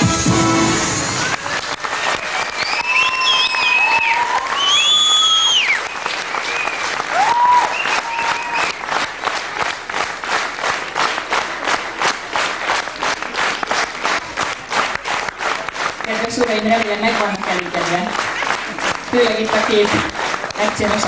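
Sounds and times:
audience applauding: 0.7 - 21.0
rhythmic clapping in unison: 1.0 - 21.0
whistle: 2.5 - 6.9, 7.6 - 8.8.

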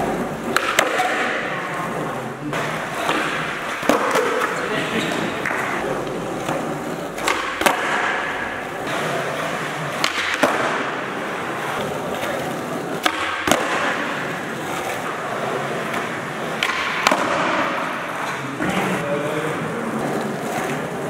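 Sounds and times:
skateboard wheels rolling: 0.0 - 21.0
skateboard cracks on landing: 10.0 - 11.1, 13.0 - 14.2.

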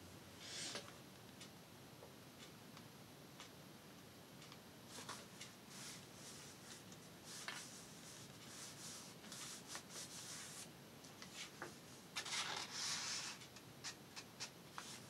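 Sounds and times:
hands rubbing paper: 5.7 - 10.7.

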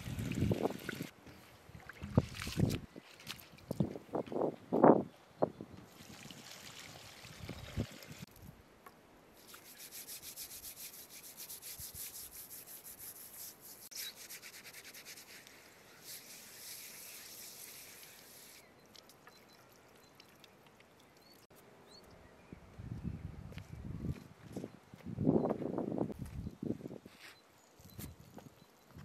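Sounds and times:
water trickling from hose: 0.0 - 1.1, 5.9 - 8.3, 9.4 - 12.2, 15.0 - 21.5.

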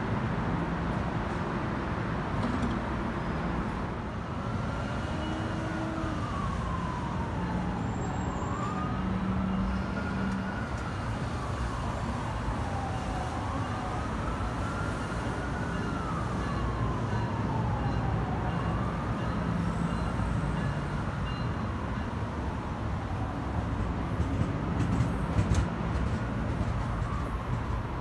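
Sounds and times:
siren wailing: 4.3 - 21.4.

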